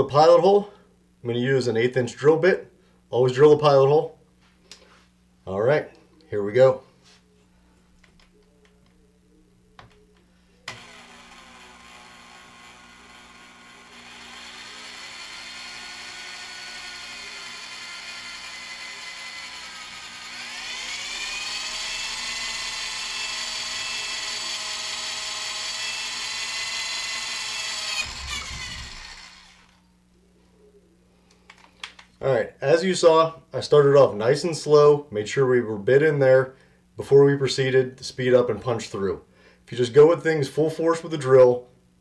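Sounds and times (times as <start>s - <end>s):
electric drill whining: 10.7s - 29.8s.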